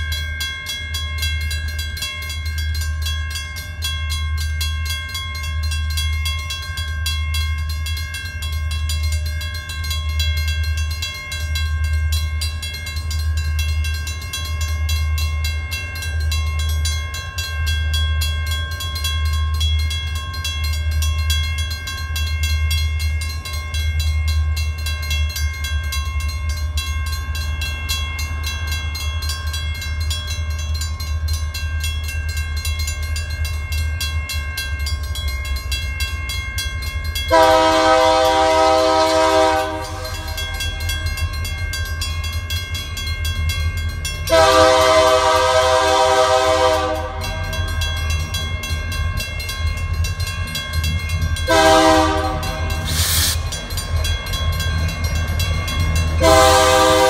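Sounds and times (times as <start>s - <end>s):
crossing warning bell ringing: 0.0s - 57.0s
locomotive air horn blast: 37.3s - 40.2s, 44.3s - 47.2s, 51.5s - 53.4s, 56.2s - 57.0s.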